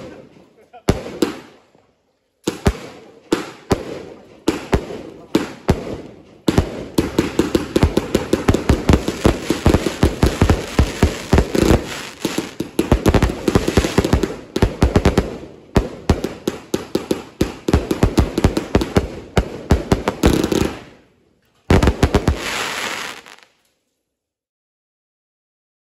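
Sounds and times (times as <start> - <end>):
fireworks bursting: 0.0 - 1.7, 2.4 - 21.1, 21.7 - 23.6.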